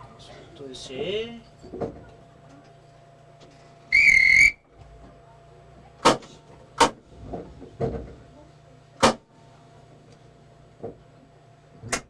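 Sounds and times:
buzzer tone: 3.9 - 4.6.

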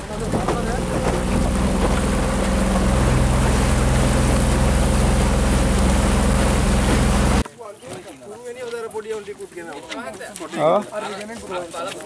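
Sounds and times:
outboard motor droning: 0.0 - 7.4
wind and water rushing: 0.0 - 7.4.

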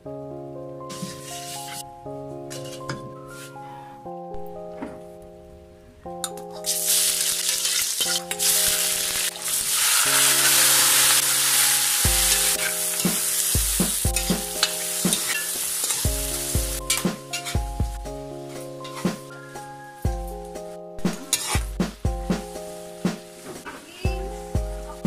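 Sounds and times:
squid sizzling in hot oil: 6.7 - 17.0.

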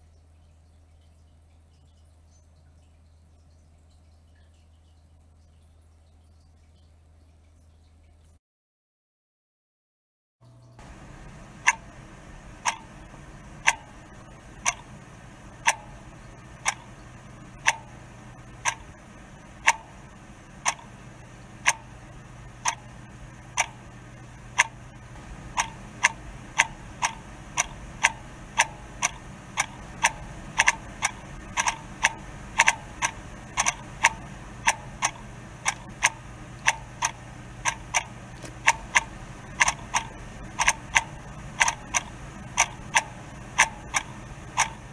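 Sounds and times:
low steady hum: 0.0 - 8.4, 10.4 - 44.9
clock ticking: 10.8 - 44.9
second clock ticking: 10.8 - 44.9.

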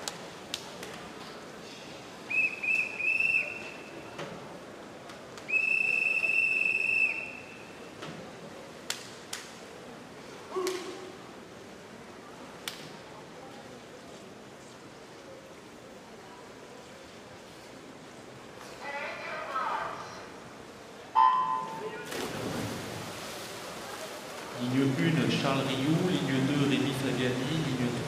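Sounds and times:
referee's whistle blasts: 21.2 - 21.9.

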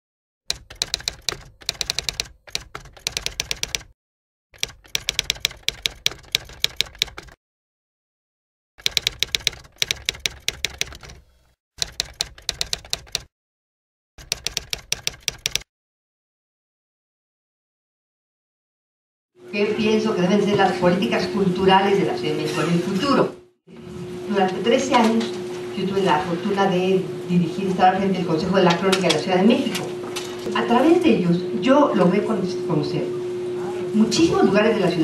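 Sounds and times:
typewriter key strikes: 0.5 - 3.9, 4.6 - 7.4, 8.8 - 11.2, 11.8 - 13.3, 14.2 - 15.6.

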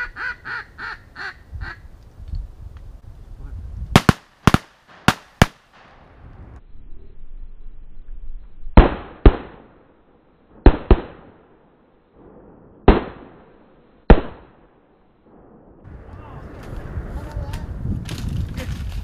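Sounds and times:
shotgun shots with echo: 4.0 - 5.9, 10.6 - 11.4, 12.9 - 13.4.

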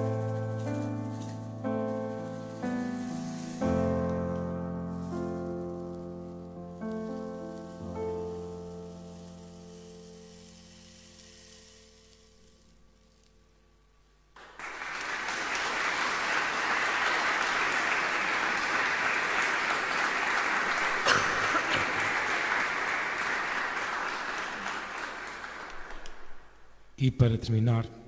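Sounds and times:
audience clapping: 14.4 - 26.6.

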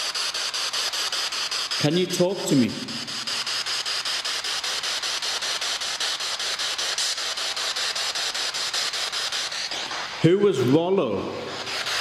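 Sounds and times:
radio static hiss: 1.4 - 4.5, 9.7 - 11.9.

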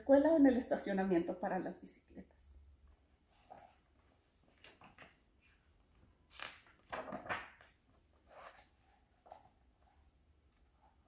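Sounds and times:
paper page rustling: 3.3 - 11.0.

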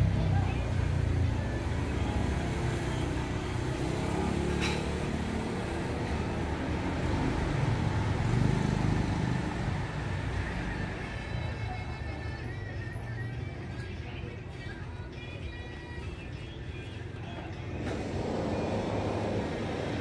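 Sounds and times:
motor scooters passing: 0.0 - 11.9, 17.7 - 20.0.

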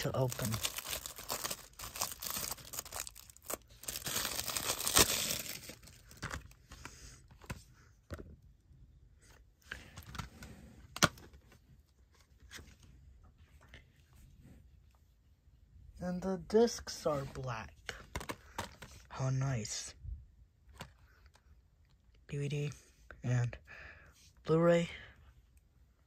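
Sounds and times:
plastic wrap crackling: 0.0 - 6.6.

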